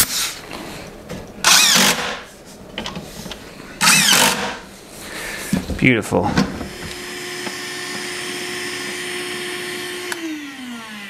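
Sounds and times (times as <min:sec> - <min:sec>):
cordless drill driving screws: 0:01.4 - 0:02.2, 0:03.8 - 0:04.6, 0:06.7 - 0:11.0.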